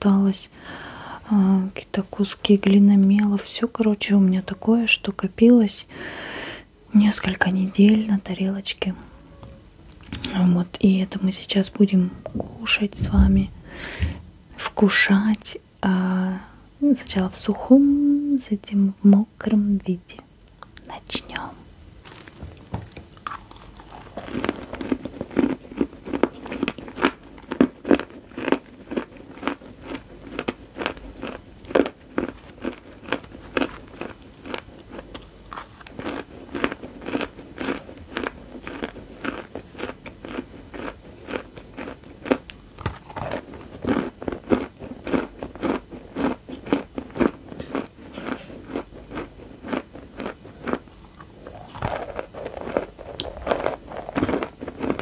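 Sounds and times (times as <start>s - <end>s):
chewing crunchy chalk: 22.0s - 55.0s.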